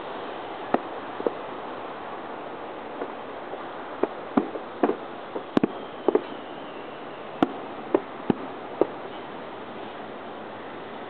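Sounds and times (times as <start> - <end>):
steady background hiss: 0.0 - 11.0
firework shells bursting: 4.0 - 9.3.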